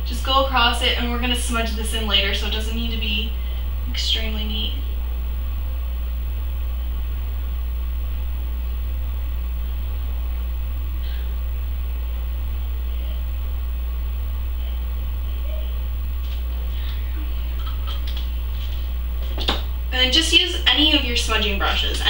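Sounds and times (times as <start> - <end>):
low background hum: 0.0 - 22.0.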